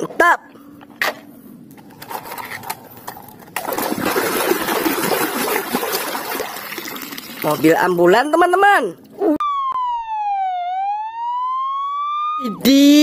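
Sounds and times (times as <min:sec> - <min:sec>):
splashing water: 0:03.6 - 0:08.0.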